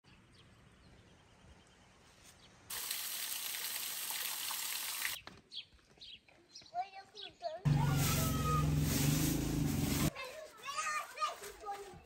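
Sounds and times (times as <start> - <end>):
stream running over rocks: 2.7 - 5.2.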